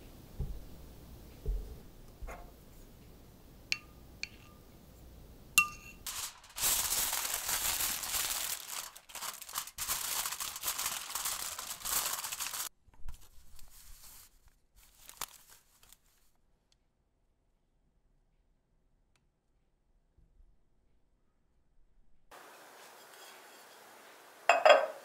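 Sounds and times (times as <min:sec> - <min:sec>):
aluminium foil crinkling: 0:06.0 - 0:16.4.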